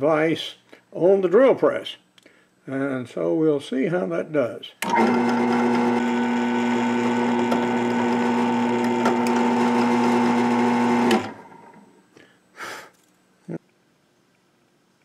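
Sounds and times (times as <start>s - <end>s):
drill press drilling into metal: 4.8s - 11.8s.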